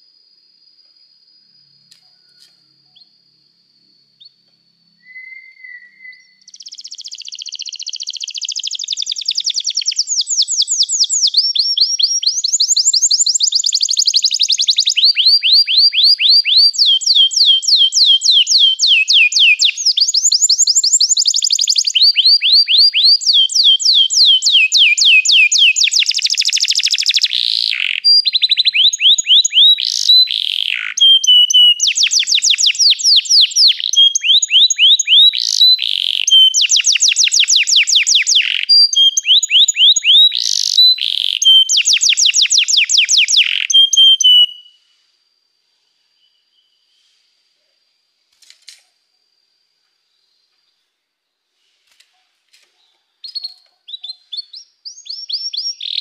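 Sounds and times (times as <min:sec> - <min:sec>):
canary singing rapid trills: 0:05.2 - 0:44.7, 0:53.2 - 0:56.0.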